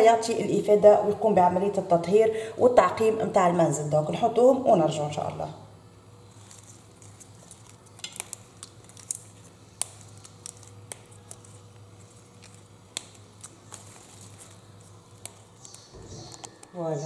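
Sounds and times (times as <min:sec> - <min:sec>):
leaves clinking in metal pot: 0:06.3 - 0:17.0.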